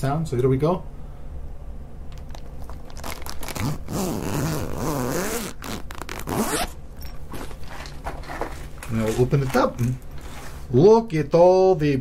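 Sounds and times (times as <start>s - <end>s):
zipper being pulled open: 2.7s - 6.8s.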